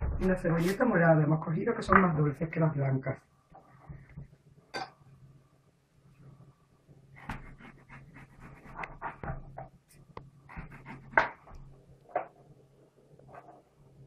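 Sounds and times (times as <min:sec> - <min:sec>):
knife slicing onion: 0:07.2 - 0:09.2, 0:10.5 - 0:11.4.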